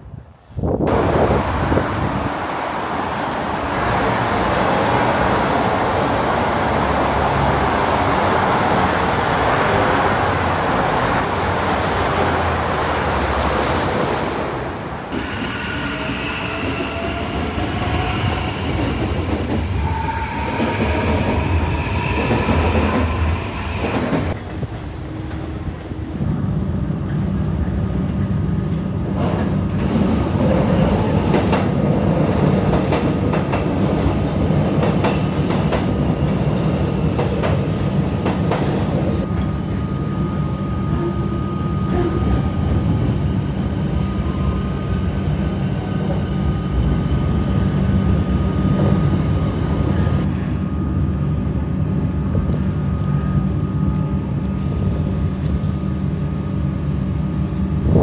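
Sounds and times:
train rumbling on rails: 0.0 - 58.0.

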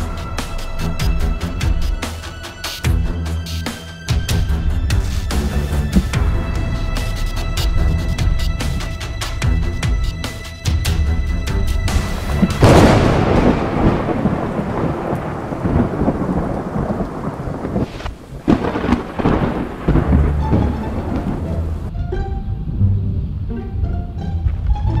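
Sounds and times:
thunderclaps with rumble: 4.3 - 10.0, 11.8 - 21.9
plucked string music: 19.8 - 25.0.

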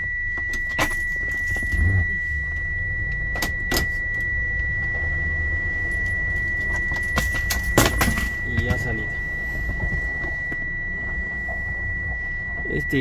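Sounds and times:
high-pitched tone: 0.0 - 13.0
low hum: 0.0 - 13.0.

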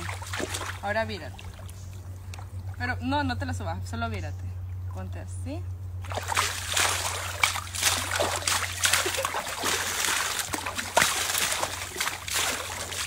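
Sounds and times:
river water splashing: 0.0 - 3.2, 6.0 - 13.0.

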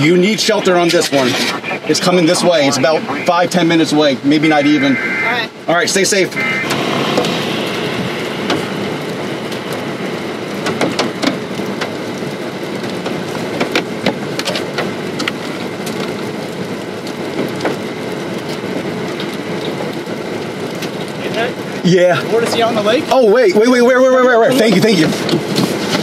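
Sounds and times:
rain falling: 0.0 - 26.0
raindrops tapping sharply: 6.4 - 23.9.

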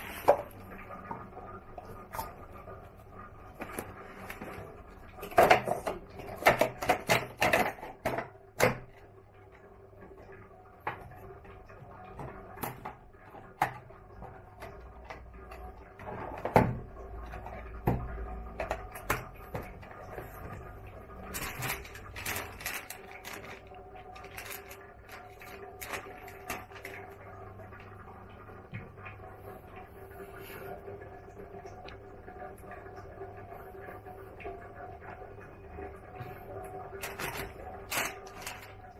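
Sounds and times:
faint steady hum: 0.0 - 38.9
paper cups crinkling: 10.8 - 27.4, 36.9 - 38.9.

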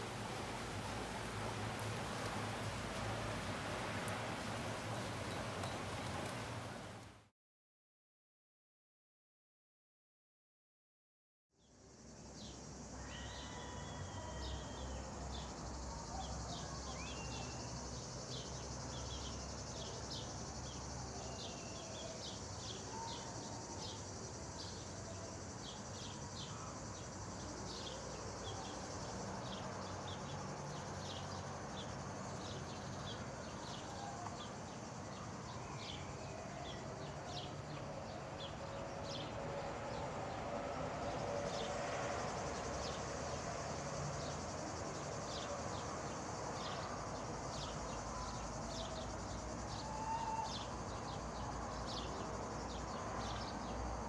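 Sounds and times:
wide hiss: 0.0 - 7.1
insects chirring: 11.8 - 54.0.

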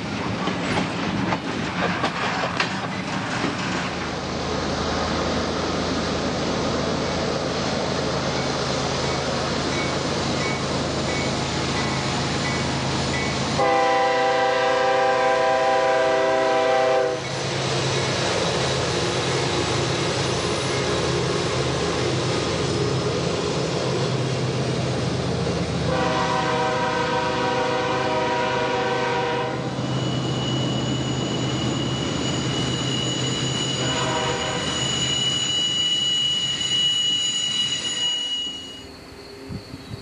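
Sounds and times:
diesel locomotive running past: 0.0 - 40.0
freight train rolling: 0.0 - 40.0
locomotive air horn blast: 13.6 - 17.2, 25.9 - 29.7, 33.8 - 34.7.

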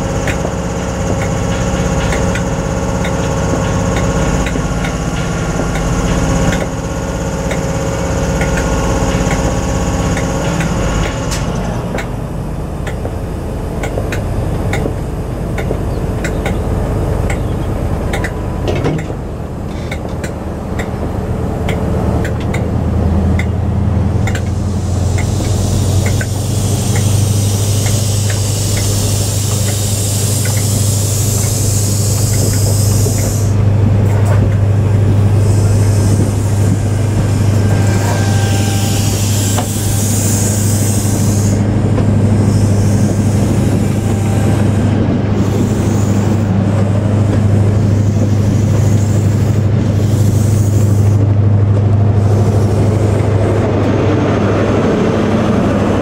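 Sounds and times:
diesel train engine idling: 0.0 - 56.0
loud hiss: 24.5 - 33.6.

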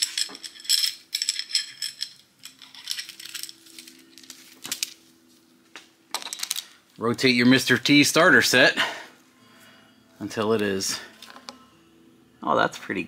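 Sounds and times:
steel parts jingling: 0.0 - 5.0.

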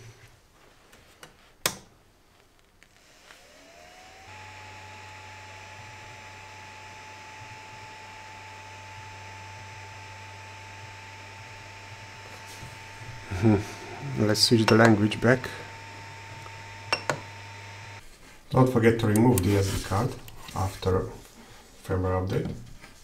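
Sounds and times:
cooling fans whirring: 3.4 - 18.0.

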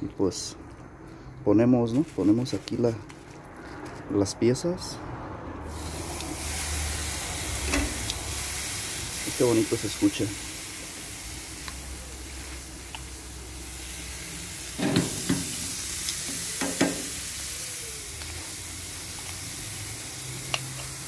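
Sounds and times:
pork chops sizzling on a grill: 5.6 - 21.0.

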